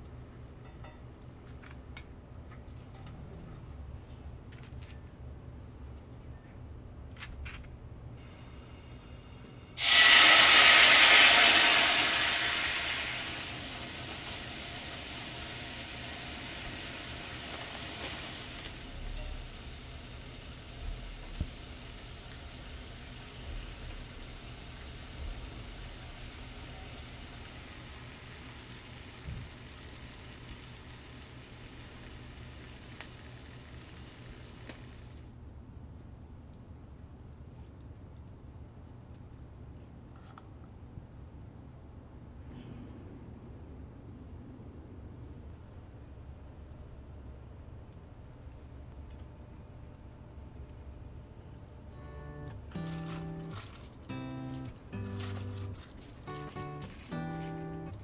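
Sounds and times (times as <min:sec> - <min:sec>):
food sizzling in a frying pan: 0:09.8 - 0:35.2, 0:52.8 - 0:58.0.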